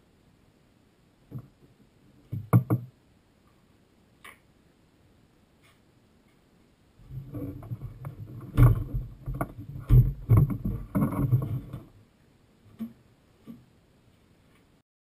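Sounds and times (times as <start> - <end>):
hollow knocks on plastic tank: 2.4 - 2.9.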